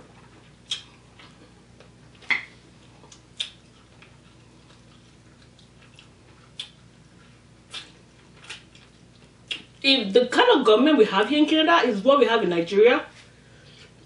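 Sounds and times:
wet mouth smacks while eating: 0.6 - 4.1, 4.7 - 6.8, 7.7 - 9.8.

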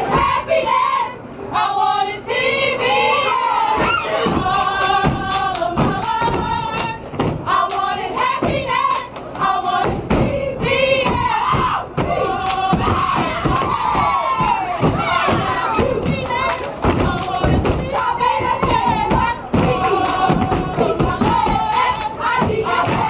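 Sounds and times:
stomps and claps: 3.8 - 23.0
group chanting in unison: 7.5 - 23.0.

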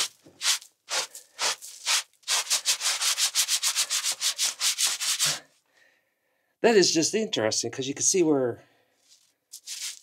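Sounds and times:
scraping on rough stone: 0.0 - 3.4.

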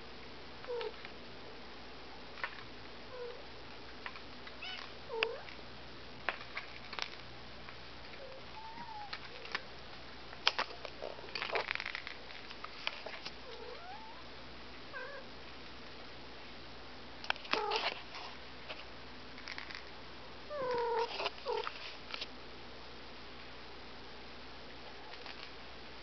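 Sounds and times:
kittens meowing: 8.3 - 9.2.

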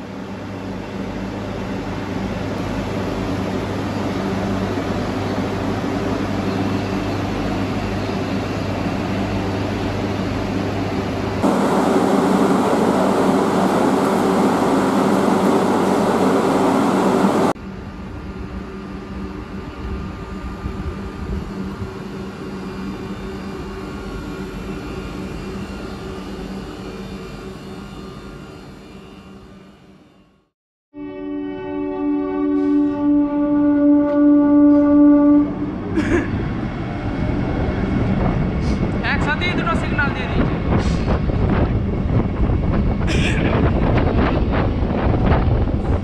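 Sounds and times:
train equipment humming: 0.0 - 30.4, 31.6 - 46.0
rushing noise: 11.4 - 17.6.

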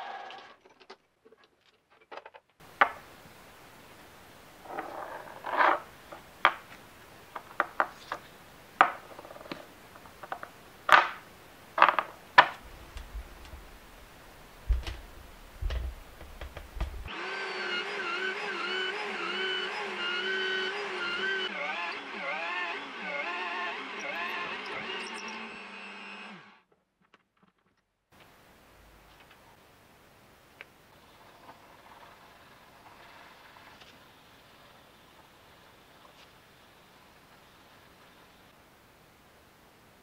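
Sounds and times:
drill press whining: 2.6 - 26.6.

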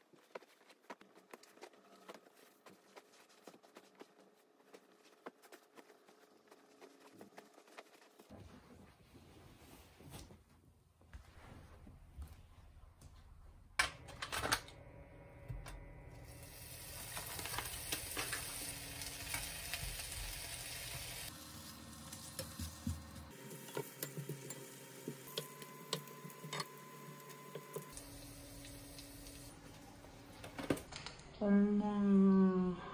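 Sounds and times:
bacon sizzling in a frying pan: 16.3 - 25.3.

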